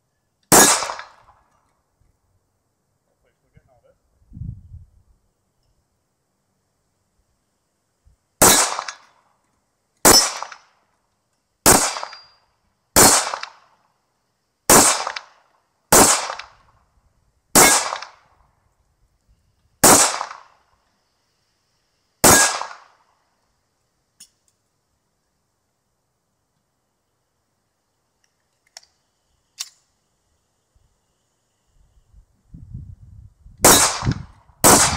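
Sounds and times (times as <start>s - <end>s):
pistol shots with echo: 0.5s - 1.3s, 8.4s - 9.1s, 10.1s - 10.7s, 11.7s - 12.4s, 13.0s - 13.7s, 14.7s - 16.6s, 17.6s - 18.2s, 19.8s - 20.6s, 22.2s - 23.0s, 33.6s - 34.9s.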